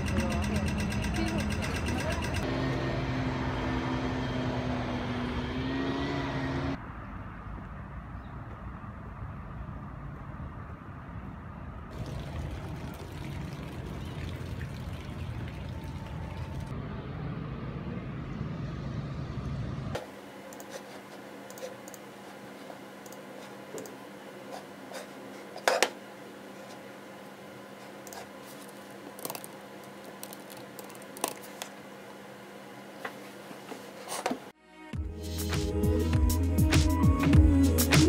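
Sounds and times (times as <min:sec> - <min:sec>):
outdoor low rumble: 0:06.2 - 0:20.0.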